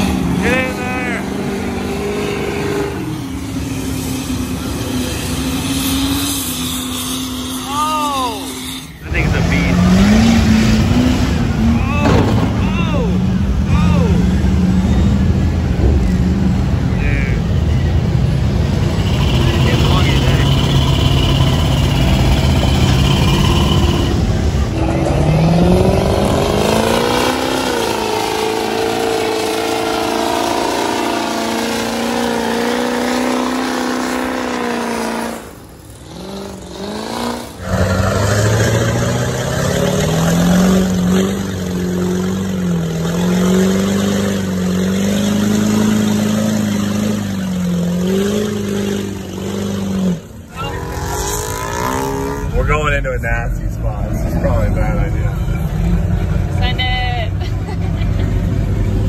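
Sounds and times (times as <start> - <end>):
engine at high revs wavering: 0.0 - 59.0
truck engines revving: 0.0 - 59.0.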